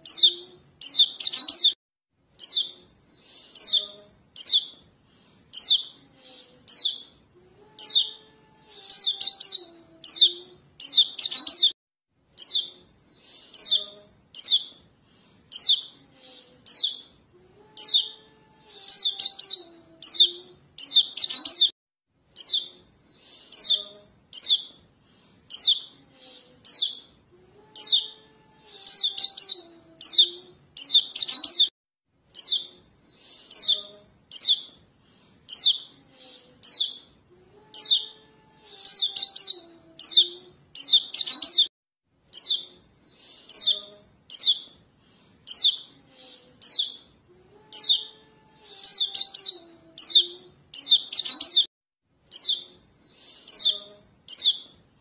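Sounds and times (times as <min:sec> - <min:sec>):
young birds begging chirps: 0:00.0 - 0:01.8, 0:02.4 - 0:04.8, 0:05.5 - 0:07.1, 0:07.8 - 0:11.8, 0:12.4 - 0:14.8, 0:15.5 - 0:17.1, 0:17.8 - 0:21.7, 0:22.4 - 0:24.8, 0:27.8 - 0:28.2, 0:28.8 - 0:31.7, 0:32.4 - 0:34.7, 0:35.5 - 0:37.1, 0:37.8 - 0:41.7, 0:42.4 - 0:44.7, 0:45.5 - 0:47.1, 0:47.7 - 0:51.7, 0:52.3 - 0:54.7.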